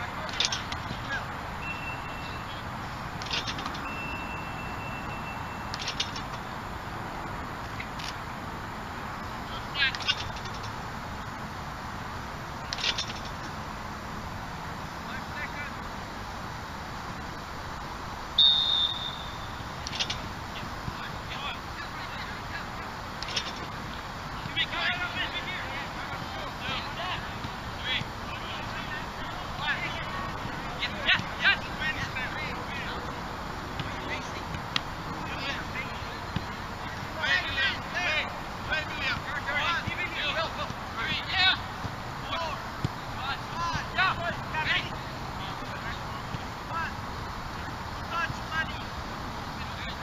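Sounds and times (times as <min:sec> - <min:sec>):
steady outdoor hiss: 0:00.0 - 0:50.0
thin high steady tone: 0:01.5 - 0:06.3, 0:18.2 - 0:23.6
sharp whistle blast: 0:01.6 - 0:02.5, 0:03.8 - 0:05.8, 0:18.4 - 0:19.7.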